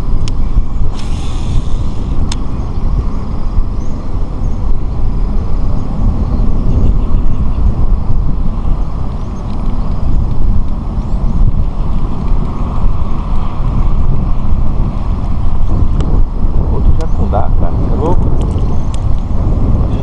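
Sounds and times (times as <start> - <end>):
wind buffeting microphone: 0.0 - 20.0
brief hiss: 0.9 - 2.1.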